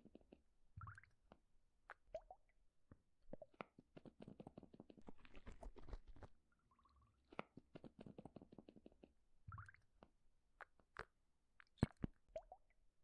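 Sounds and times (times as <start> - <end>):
thick liquid squishing and popping: 3.3 - 12.7.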